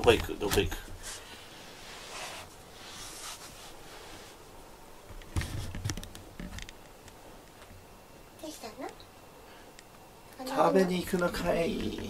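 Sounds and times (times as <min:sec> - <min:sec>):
quiet rustling and handling: 0:00.0 - 0:07.9.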